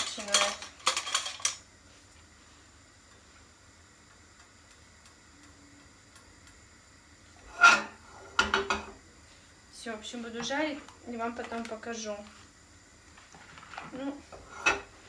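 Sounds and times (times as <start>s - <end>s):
kitchen utensils clattering: 0.0s - 1.6s, 7.5s - 8.9s, 13.7s - 14.9s.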